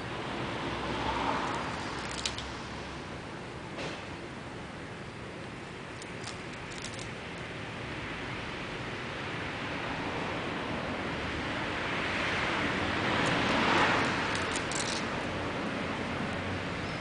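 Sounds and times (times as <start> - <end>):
steady rushing background noise: 5.4 - 17.0.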